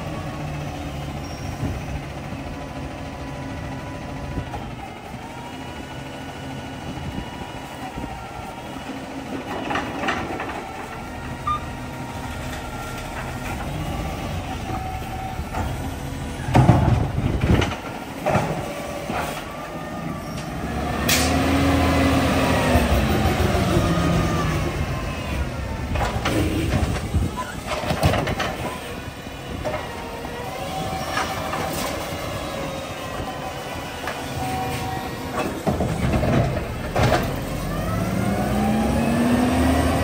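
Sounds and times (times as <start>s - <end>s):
garbage truck engine running: 0.0s - 40.0s
loud knocks and clatters: 16.5s - 18.7s.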